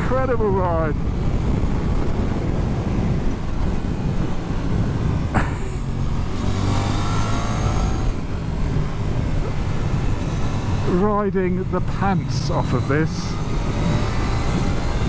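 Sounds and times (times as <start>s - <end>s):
motorcycle engine: 0.0s - 15.0s
wind rush on microphone: 0.0s - 15.0s.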